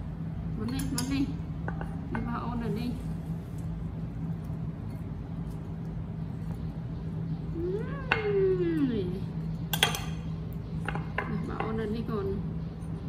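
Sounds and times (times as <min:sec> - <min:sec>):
metal spoon clinking on plate: 0:09.7 - 0:11.8.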